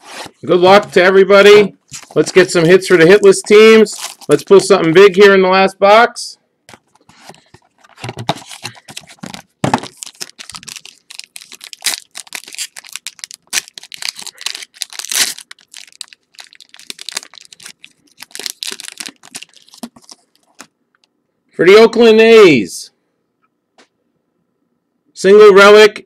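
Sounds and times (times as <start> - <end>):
cards rustling: 1.9 - 4.9, 6.7 - 20.7
plastic wrapping tearing and crinkling: 3.9 - 4.4, 6.7 - 20.7.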